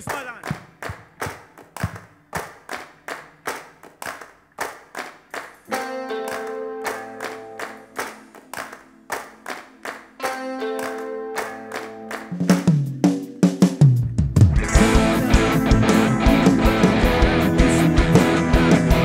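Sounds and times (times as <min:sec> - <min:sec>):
hands clapping in rhythm: 0:00.0 - 0:12.9, 0:15.2 - 0:19.0
instrument long held chords: 0:05.7 - 0:12.6, 0:14.6 - 0:19.0.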